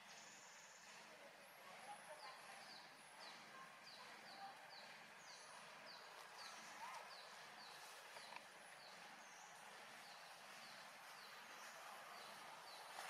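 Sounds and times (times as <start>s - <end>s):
steady outdoor hiss: 0.0s - 13.0s.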